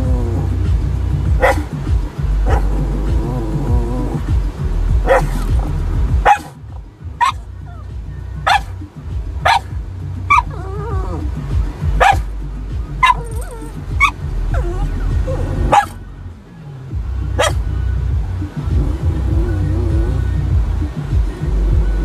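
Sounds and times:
dog barking: 1.4s - 1.7s, 2.4s - 2.7s, 5.0s - 5.4s, 6.2s - 6.6s, 7.2s - 7.4s, 8.4s - 8.7s, 9.4s - 9.7s, 10.3s - 11.0s, 12.0s - 12.3s, 13.0s - 14.9s, 15.7s - 16.0s, 17.4s - 17.6s.

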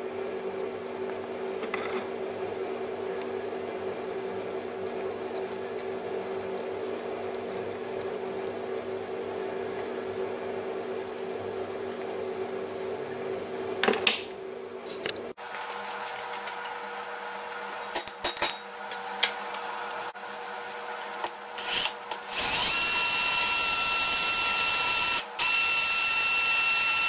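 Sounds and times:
steady machine hum: 0.0s - 17.9s.

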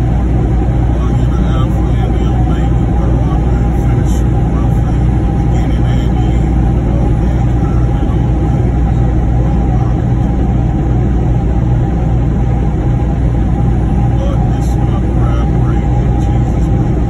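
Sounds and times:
truck engine and road noise: 0.0s - 17.0s.

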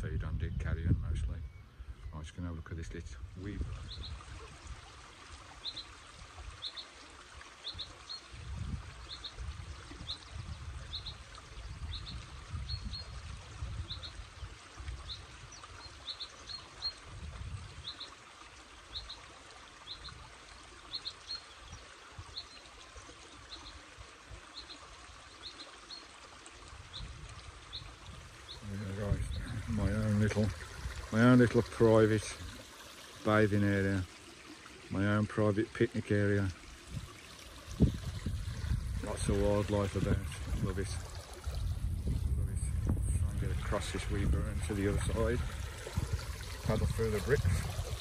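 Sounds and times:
wind rumble on microphone: 0.0s - 4.9s, 8.3s - 15.9s, 16.8s - 17.9s, 26.7s - 32.6s, 36.8s - 48.0s
stream trickling over stones: 2.0s - 48.0s.

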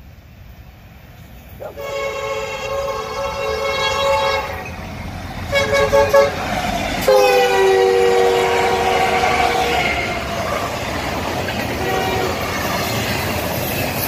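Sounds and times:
diesel engines rumbling: 0.0s - 14.0s
locomotive air horn blasts: 1.6s - 4.8s, 5.5s - 10.2s, 11.8s - 12.5s.

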